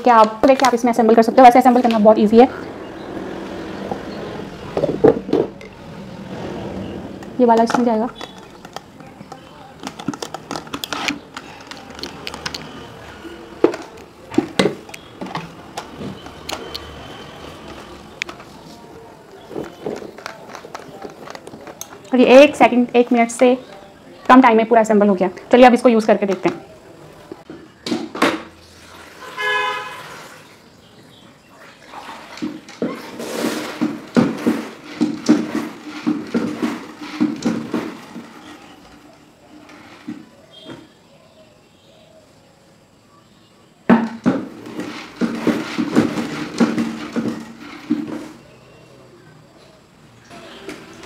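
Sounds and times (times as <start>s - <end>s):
mop bucket spinner clacking: 0.0s - 18.5s, 32.1s - 40.8s, 44.1s - 48.4s.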